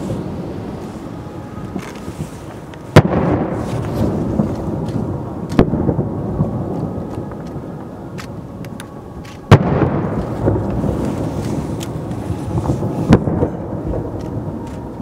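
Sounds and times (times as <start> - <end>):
firework booms with echo: 2.9 - 7.7, 9.4 - 11.6, 12.5 - 14.6.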